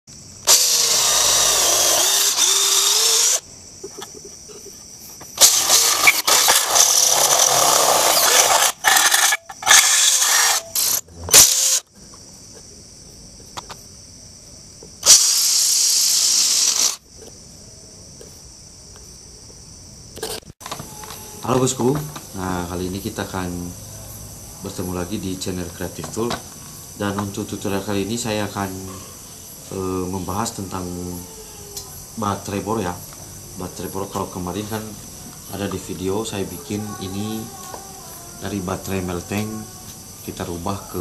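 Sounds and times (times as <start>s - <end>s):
cordless drill drilling: 0.5s - 3.4s, 5.4s - 11.8s, 15.0s - 17.0s.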